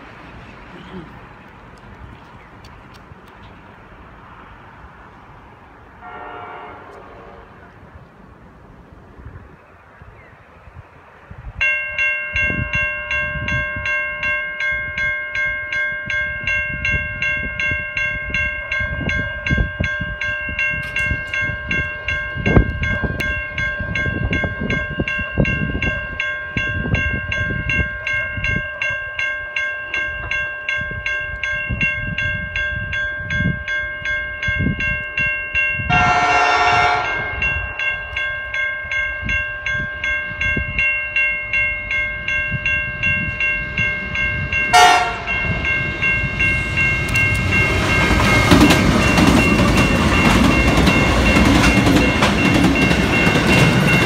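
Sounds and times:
locomotive horn blast: 0:06.0 - 0:07.8, 0:35.9 - 0:37.6, 0:44.7 - 0:45.7
level crossing warning bell: 0:11.5 - 0:54.0.

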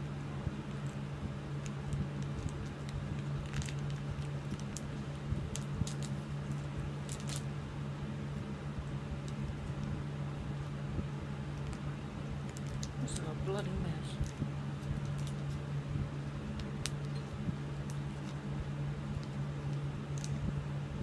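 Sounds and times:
steady low hum: 0:00.0 - 0:21.0
wrapper crinkling and peeling: 0:00.6 - 0:07.6, 0:09.2 - 0:10.0, 0:11.4 - 0:15.7, 0:16.3 - 0:20.4.

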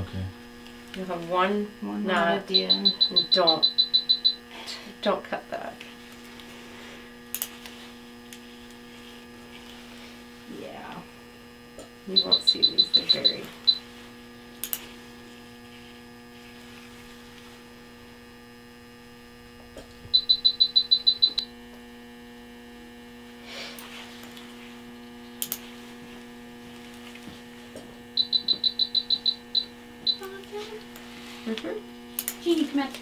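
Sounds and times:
electrical hum: 0:00.0 - 0:33.0
rapid high-pitched monitor beeps: 0:02.5 - 0:04.4, 0:12.1 - 0:13.8, 0:20.1 - 0:21.5, 0:28.2 - 0:30.3
surgical instruments clicking: 0:14.6 - 0:14.9, 0:25.4 - 0:25.6, 0:32.1 - 0:32.4.

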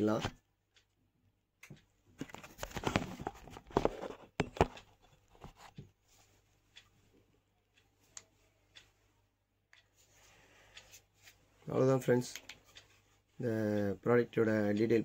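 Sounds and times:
selfie stick handling rustling: 0:01.6 - 0:06.9, 0:09.7 - 0:13.3
sharp clicks: 0:12.0 - 0:12.9.

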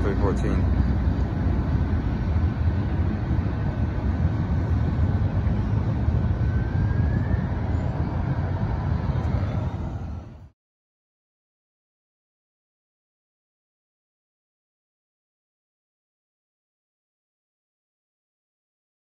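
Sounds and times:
diesel locomotive rumble: 0:00.0 - 0:10.5.

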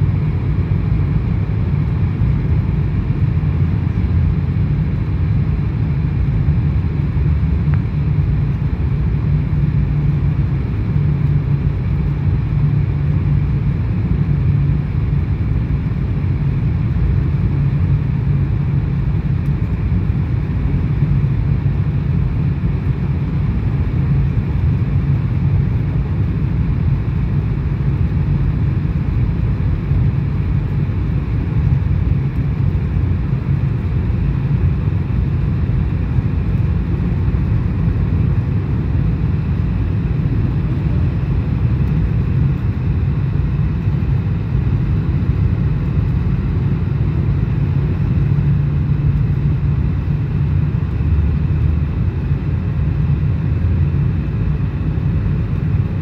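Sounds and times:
airliner cabin engine rumble: 0:00.0 - 0:56.0.

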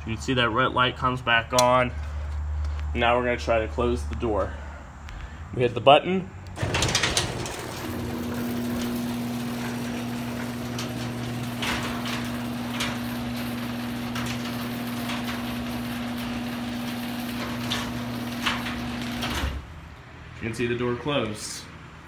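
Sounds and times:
garage door clicks: 0:06.5 - 0:19.8
garage door opener humming: 0:06.5 - 0:19.9.

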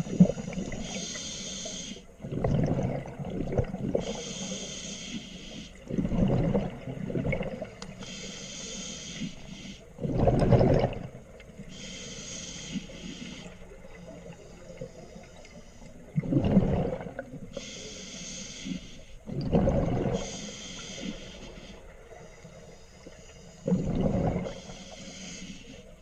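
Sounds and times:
regulator inhalation hiss: 0:00.2 - 0:02.1, 0:04.0 - 0:05.8, 0:08.0 - 0:09.9, 0:11.7 - 0:16.0, 0:17.6 - 0:19.2, 0:20.2 - 0:23.6, 0:24.5 - 0:25.9
exhaled bubbles rushing: 0:02.2 - 0:04.1, 0:05.9 - 0:07.8, 0:10.0 - 0:11.2, 0:16.2 - 0:17.4, 0:19.3 - 0:20.3, 0:23.7 - 0:24.6.

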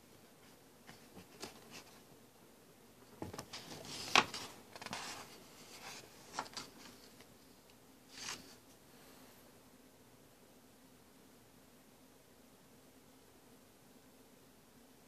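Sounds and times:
magazine pages turning: 0:03.3 - 0:07.2, 0:08.1 - 0:08.6.

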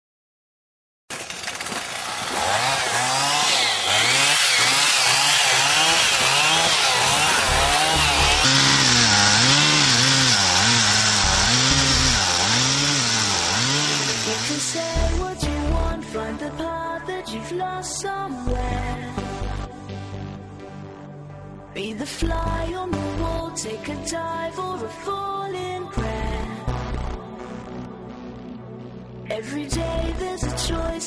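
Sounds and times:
chainsaw cutting wood: 0:01.1 - 0:15.9.

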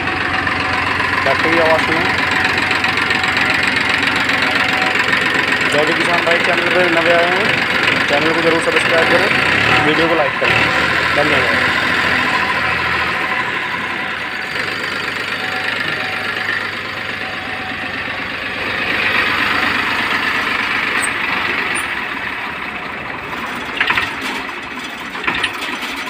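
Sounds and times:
tractor diesel engine idling: 0:00.0 - 0:26.0.

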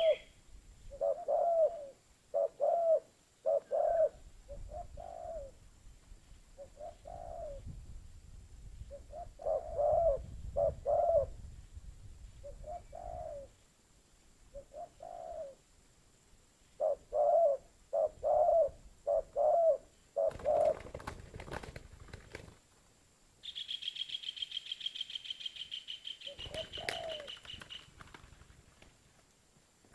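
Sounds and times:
dove cooing: 0:00.0 - 0:00.3, 0:00.9 - 0:05.6, 0:06.6 - 0:07.6, 0:08.9 - 0:11.3, 0:12.4 - 0:13.5, 0:14.5 - 0:15.6, 0:16.8 - 0:21.2, 0:26.2 - 0:27.8.

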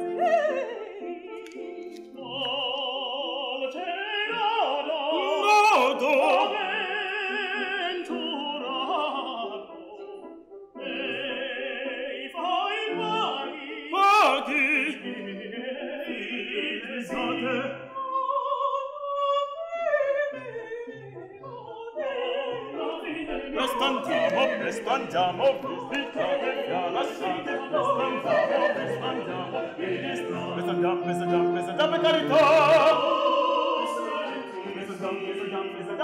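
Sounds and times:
instrumental accompaniment: 0:00.0 - 0:04.6, 0:20.3 - 0:36.0
operatic singing: 0:00.0 - 0:36.0.

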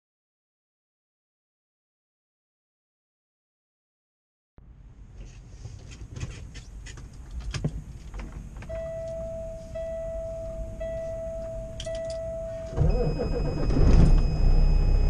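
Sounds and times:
dash warning buzzer beeping: 0:08.7 - 0:15.0.

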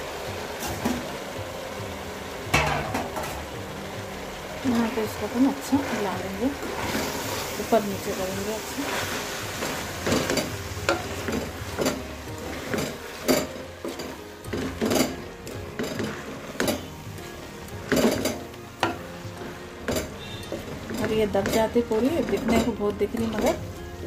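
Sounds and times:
faint frying sizzle: 0:00.0 - 0:24.0.

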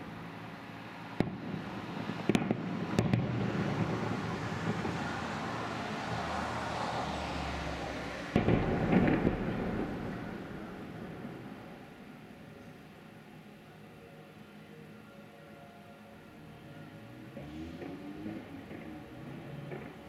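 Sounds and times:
continuous rumble: 0:00.0 - 0:06.7, 0:07.8 - 0:15.3, 0:16.0 - 0:20.0
firework shells bursting: 0:08.4 - 0:10.2.

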